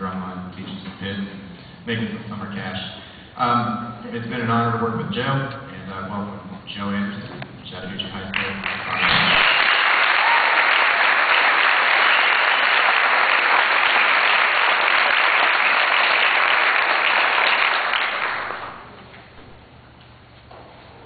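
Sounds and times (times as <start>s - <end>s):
faint low hum: 0.0s - 9.6s
audience applauding: 8.3s - 18.9s.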